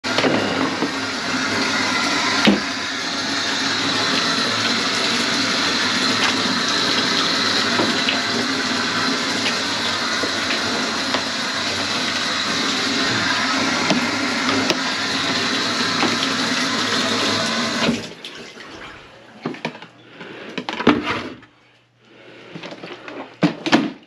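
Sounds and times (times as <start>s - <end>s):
faucet running into metal sink: 0.1s - 18.2s.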